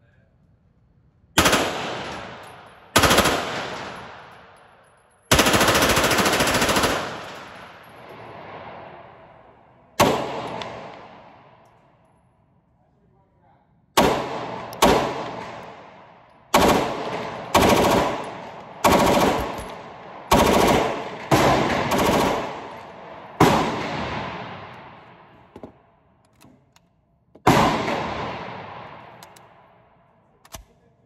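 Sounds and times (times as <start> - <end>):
submachine gun bursts echoing: 1.4 - 4.6, 5.3 - 7.9, 16.5 - 24.8.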